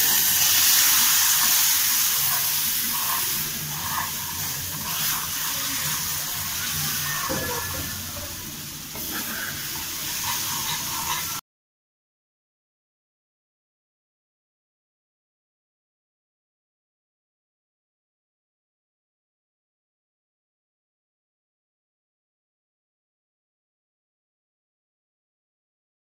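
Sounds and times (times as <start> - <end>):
syrup sizzling in frying pan: 0.0 - 11.4.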